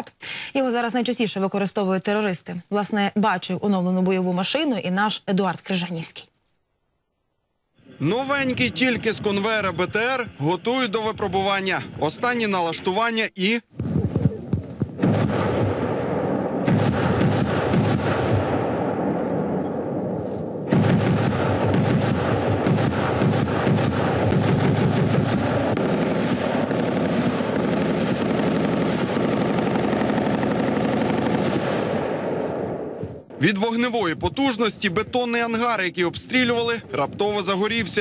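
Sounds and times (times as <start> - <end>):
automatic cannon firing bursts: 14.9 - 19.6, 20.6 - 32.8.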